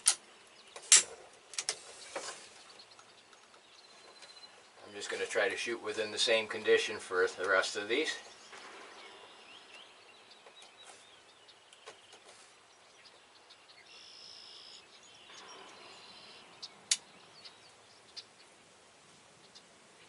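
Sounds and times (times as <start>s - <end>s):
faint bird chirps: 1.8s - 5.0s, 7.9s - 18.6s.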